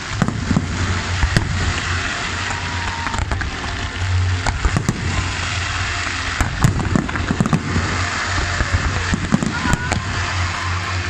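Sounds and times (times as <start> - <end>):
fireworks bangs: 0.0 - 11.0
fireworks crackling: 0.0 - 11.0.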